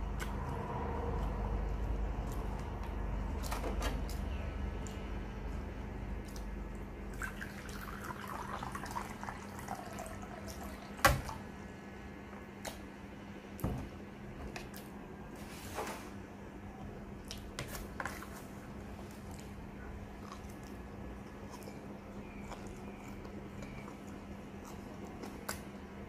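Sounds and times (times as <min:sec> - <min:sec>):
water pouring into glass bowl: 0:07.1 - 0:10.9.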